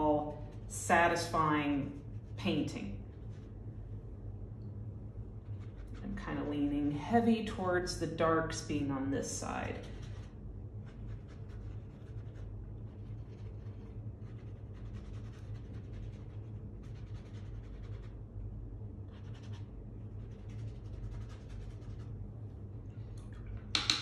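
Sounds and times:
steady low hum: 0:00.0 - 0:24.0
paintbrush scratching on paper: 0:00.6 - 0:03.7, 0:05.4 - 0:06.4, 0:09.7 - 0:18.3, 0:19.1 - 0:22.2.

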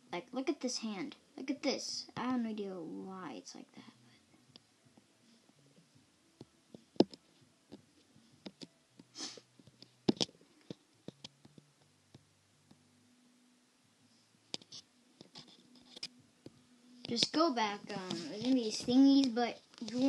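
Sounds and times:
faint low hum: 0:00.0 - 0:20.0
fingertips tapping touchscreen: 0:06.4 - 0:12.3, 0:14.5 - 0:20.0.

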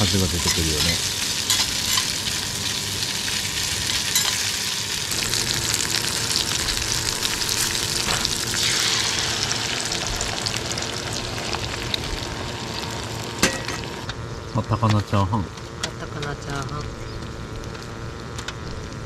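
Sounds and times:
sausage sizzling in skillet: 0:00.0 - 0:14.1.

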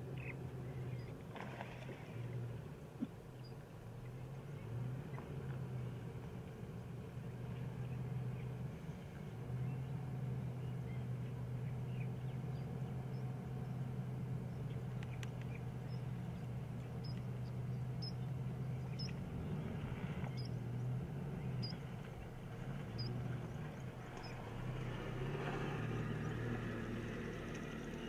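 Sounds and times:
vehicle engine idling: 0:00.0 - 0:01.3, 0:01.9 - 0:28.0
faint bird chirps: 0:14.5 - 0:19.2, 0:20.3 - 0:20.6
small ticks: 0:14.7 - 0:16.1, 0:16.7 - 0:18.2, 0:27.4 - 0:28.0.

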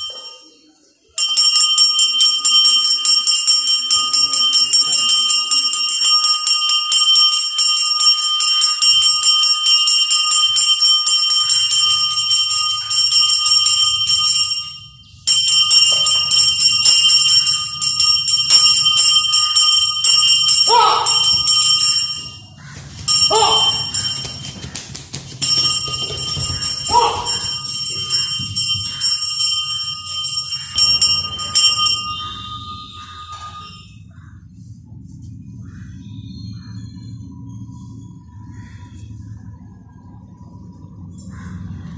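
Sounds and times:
temple bell ringing rapidly: 0:00.0 - 0:34.5
low hum: 0:14.0 - 0:41.9.

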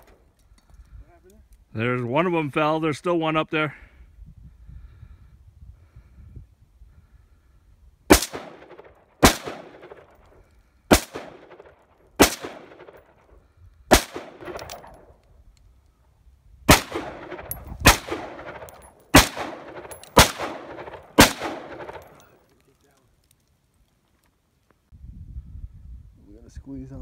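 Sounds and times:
rifle shots with echo: 0:08.1 - 0:10.2, 0:10.9 - 0:13.2, 0:13.9 - 0:15.1, 0:16.7 - 0:22.3.

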